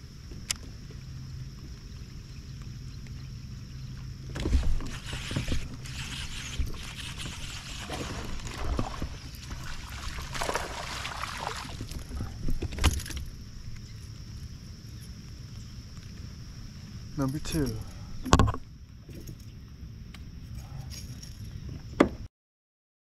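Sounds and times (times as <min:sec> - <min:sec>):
fish splashing in water: 0:06.6 - 0:12.4.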